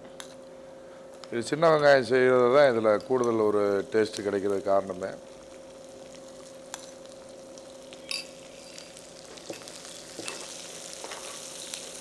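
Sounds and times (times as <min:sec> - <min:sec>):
food sizzling in oil: 0:02.9 - 0:12.0
metal spoon scraping a pan: 0:10.2 - 0:11.5.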